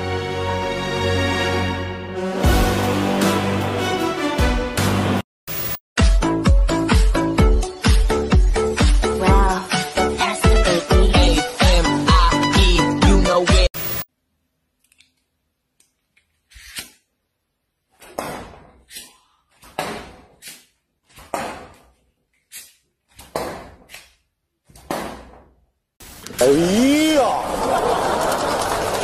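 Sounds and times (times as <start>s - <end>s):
playing cards hitting board: 18.0s - 21.9s, 22.6s - 25.4s.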